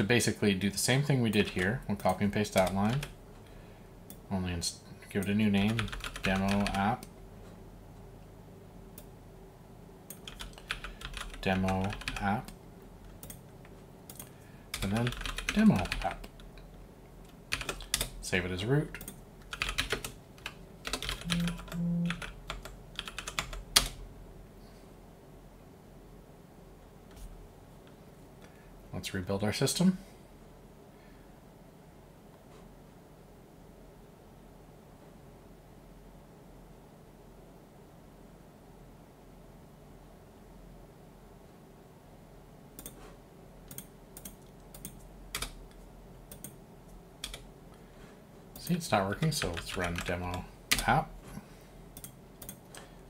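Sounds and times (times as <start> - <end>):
faint low hum: 0.0 - 53.0
computer keyboard key presses: 5.7 - 6.9, 10.1 - 12.6, 14.1 - 16.4, 17.5 - 18.2, 19.0 - 24.0, 43.7 - 45.6.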